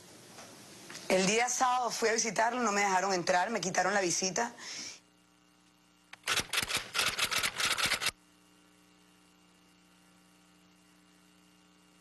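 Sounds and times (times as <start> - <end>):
faint steady hum: 0.0 - 12.0
rapid sharp clicks: 6.1 - 8.2.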